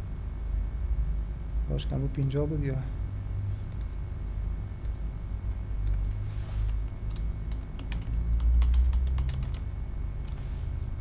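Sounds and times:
steady low rumble: 0:00.0 - 0:11.0
computer keyboard typing: 0:07.0 - 0:10.4.

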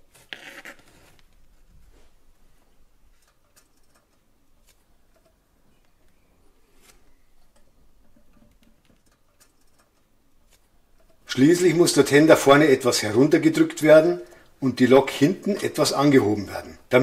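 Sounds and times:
faint clicks of small parts: 0:03.1 - 0:06.2.

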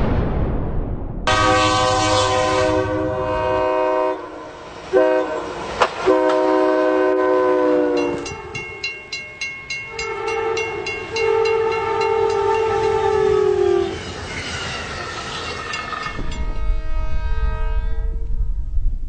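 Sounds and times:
train air horn blasts: 0:01.3 - 0:08.6, 0:09.9 - 0:14.0, 0:16.5 - 0:18.3
railroad crossing bell ringing: 0:07.8 - 0:17.1.

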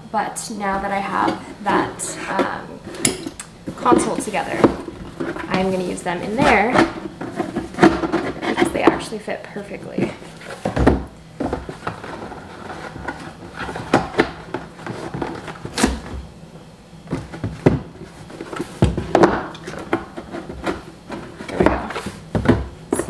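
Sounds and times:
cardboard boxes knocking and rubbing: 0:03.6 - 0:09.1, 0:09.9 - 0:16.3, 0:17.0 - 0:23.0.

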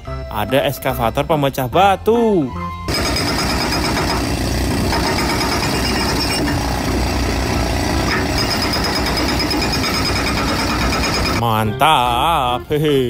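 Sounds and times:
excavator engine running: 0:02.9 - 0:11.4
hydraulic breaker pounding: 0:02.9 - 0:11.4.

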